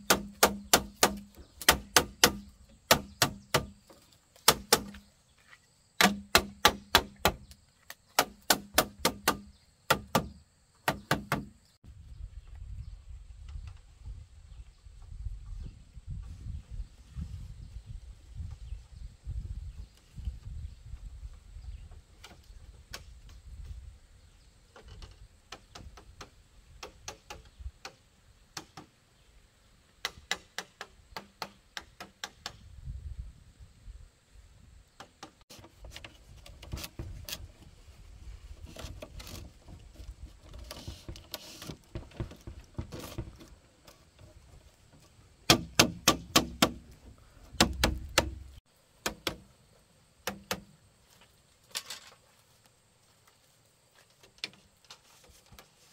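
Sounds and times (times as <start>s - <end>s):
tool knocking on bamboo: 0.0s - 3.8s, 6.0s - 7.5s, 8.2s - 11.5s, 40.8s - 43.5s, 45.5s - 47.0s, 47.6s - 49.4s.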